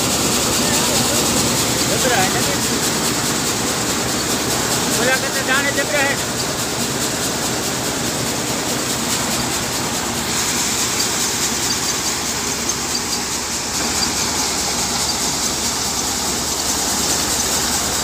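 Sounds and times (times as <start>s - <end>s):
tractor engine: 0.0s - 18.0s
threshing machine din: 10.0s - 18.0s.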